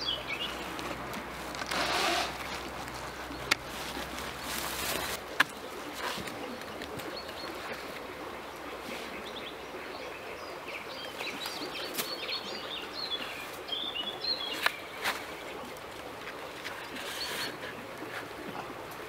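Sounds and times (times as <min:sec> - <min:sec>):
small birds chirping: 0:00.0 - 0:15.7.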